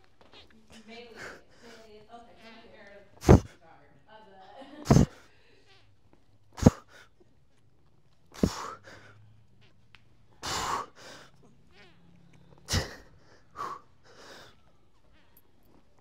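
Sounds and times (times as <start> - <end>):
man breathing forcefully: 3.2 - 3.6, 4.9 - 5.2, 6.6 - 7.1, 8.4 - 9.2, 10.4 - 11.3, 12.6 - 14.6.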